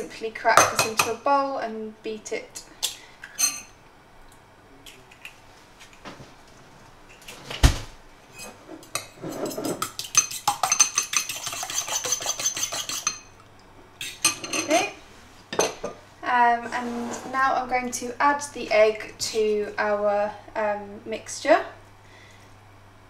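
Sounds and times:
cutlery clicking against bowl: 8.8 - 13.2.

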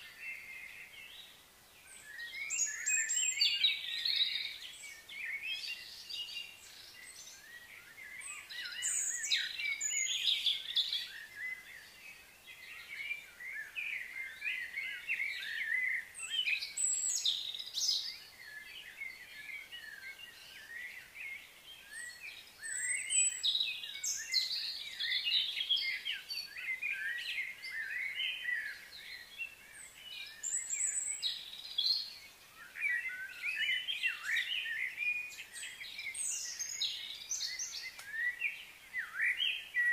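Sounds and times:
birds chirping and singing: 0.0 - 39.9.

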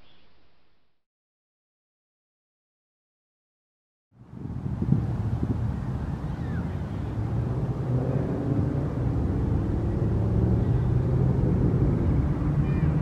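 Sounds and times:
faint high bird note: 0.0 - 0.9.

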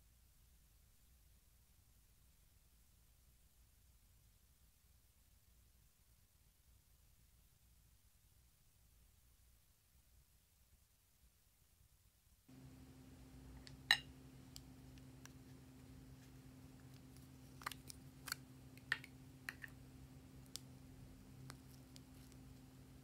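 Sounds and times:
steady low hum: 12.5 - 23.0.

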